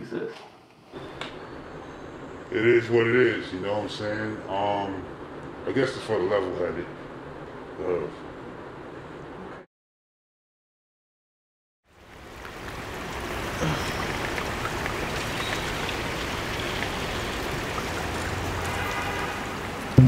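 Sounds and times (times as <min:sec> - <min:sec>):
water rushing along gutter: 0:11.9 - 0:20.0.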